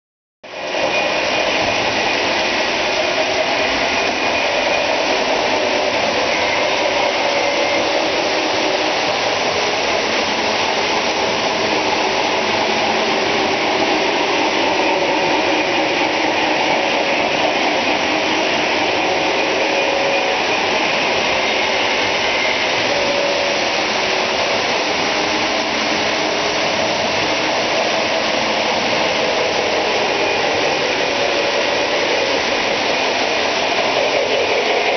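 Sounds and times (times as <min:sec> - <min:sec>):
model trains whirring and rumbling: 0:00.4 - 0:34.9.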